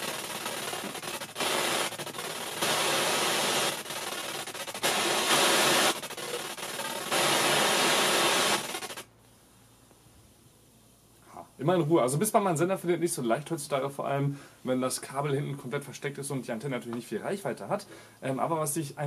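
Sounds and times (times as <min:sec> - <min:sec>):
radio static hissing: 0:00.0 - 0:09.8.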